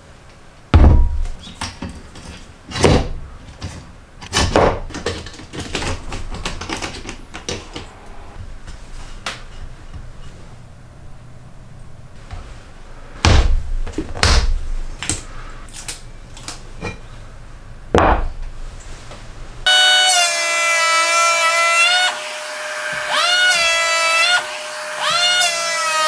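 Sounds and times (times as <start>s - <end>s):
wooden blocks knocking on bench: 18.0s - 18.3s
electric planer whining: 19.7s - 26.0s.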